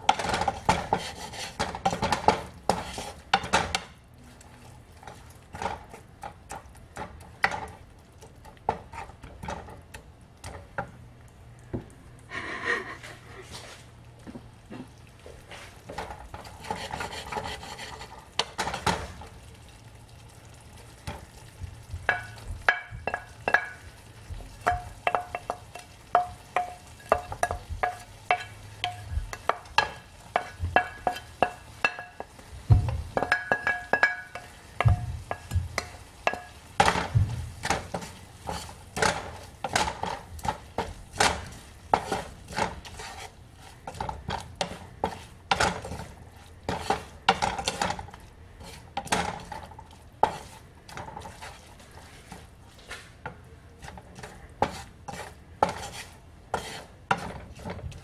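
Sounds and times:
spatula knocking pan: 0.0 - 4.0, 5.5 - 7.8, 15.9 - 19.3, 21.0 - 52.5, 53.2 - 58.0
spatula scraping frying pan: 0.0 - 7.8, 8.6 - 9.9, 15.4 - 19.3, 21.0 - 58.0
light sizzle: 0.0 - 58.0
ceramic plate clinking pan: 22.0 - 23.9, 24.6 - 43.2.

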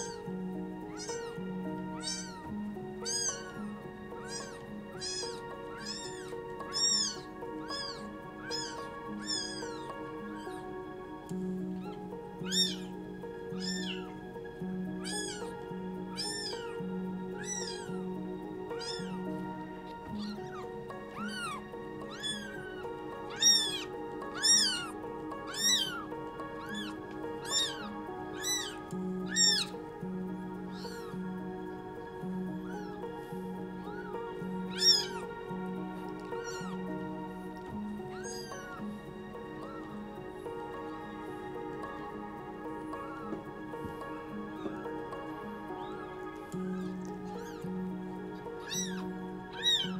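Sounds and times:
background music with held notes: 0.0 - 49.9
kitten mewing: 0.9 - 1.3, 2.0 - 2.4, 3.0 - 3.6, 4.2 - 10.5, 11.8 - 12.9, 13.6 - 14.0, 15.0 - 15.5, 16.1 - 16.7, 17.4 - 17.9, 18.8 - 19.2, 20.2 - 24.9, 25.5 - 26.0, 26.6 - 29.7, 30.7 - 31.1, 34.7 - 35.2, 36.1 - 36.8, 38.1 - 38.8, 46.8 - 47.6, 48.6 - 49.9.

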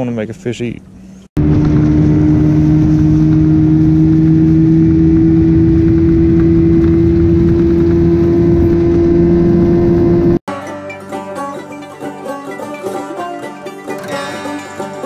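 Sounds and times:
outboard motor running: 1.4 - 10.4.

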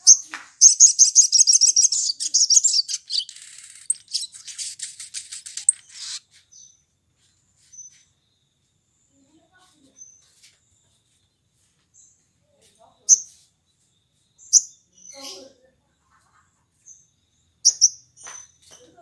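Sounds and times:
bird chirping and trilling: 0.0 - 6.8, 14.4 - 15.7, 16.9 - 18.6.

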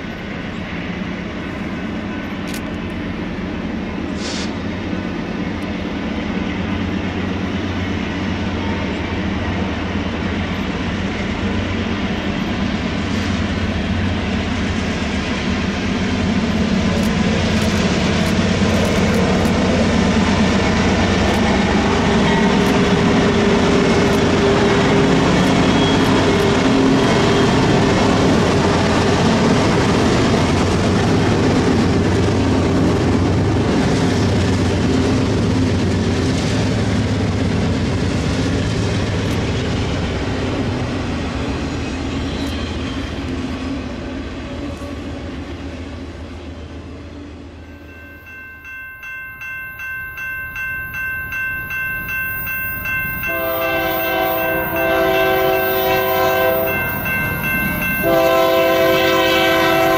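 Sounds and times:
freight train rumbling past: 0.0 - 59.9
bell ringing: 47.6 - 58.2
locomotive air horn blast: 53.2 - 56.8, 58.0 - 59.9.

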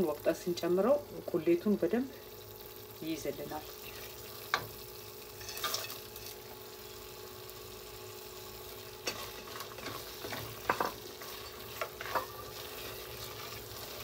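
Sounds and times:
meat sizzling in a pan: 0.0 - 14.0
wooden spoon scraping a pan: 9.0 - 14.0.

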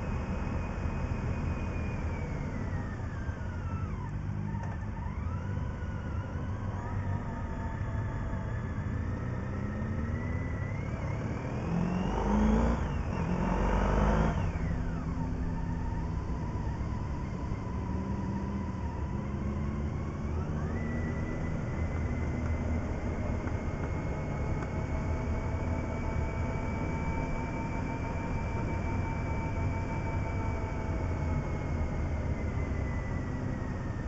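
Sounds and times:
motorcycle engine revving: 7.6 - 27.8.

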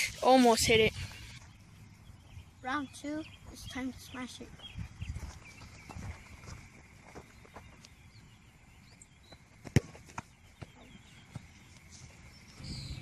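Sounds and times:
soccer ball kick thud: 9.6 - 11.6.

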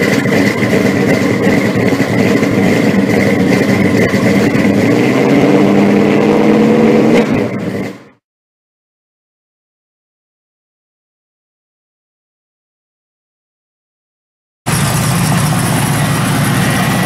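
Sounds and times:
loud car engine running: 0.0 - 8.2, 14.7 - 17.0.

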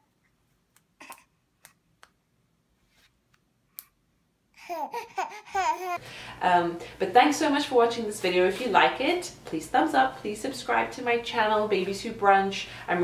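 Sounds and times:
baby's high voice: 4.6 - 6.0.

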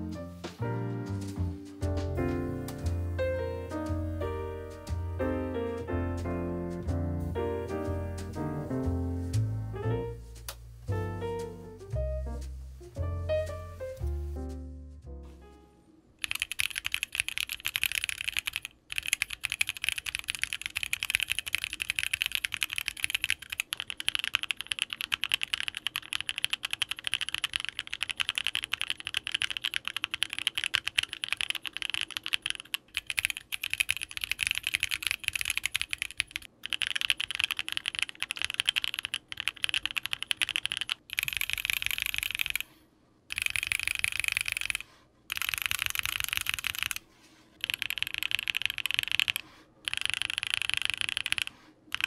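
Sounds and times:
typing on mechanical keyboard: 16.2 - 42.7, 43.3 - 47.0, 47.6 - 52.0.

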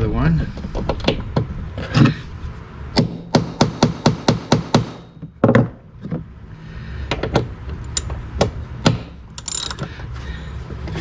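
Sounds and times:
fast ratchet clicking: 9.3 - 9.8.

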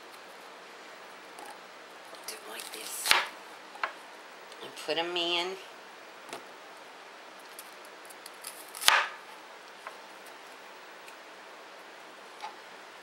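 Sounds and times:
knife cutting onion: 8.4 - 9.2.

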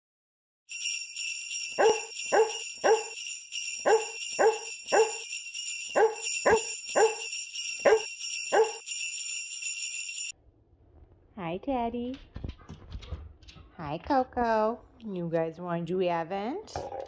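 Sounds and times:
sleigh bells jingling: 0.7 - 10.3
dog barks: 1.8 - 3.2, 3.8 - 5.2, 6.0 - 7.2, 7.9 - 8.8.

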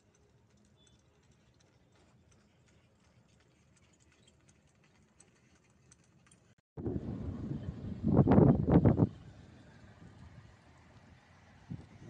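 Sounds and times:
hooves clip-clopping on paved road: 0.0 - 6.6.

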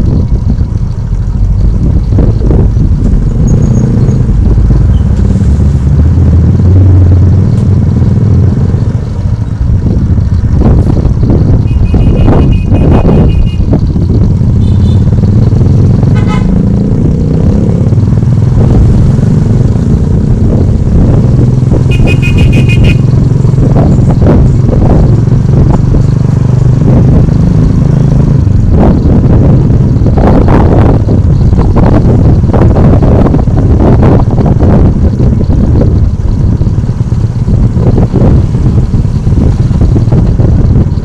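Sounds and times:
vehicle engine running: 0.0 - 41.0
wind rush on microphone: 0.0 - 41.0
horn pulsing beeps: 11.6 - 13.8, 14.6 - 15.1, 21.8 - 23.1.

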